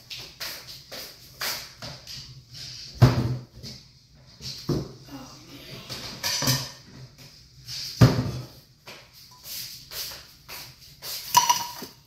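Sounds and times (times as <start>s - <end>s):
cookware and utensils clattering: 5.8s - 7.0s, 11.2s - 12.0s.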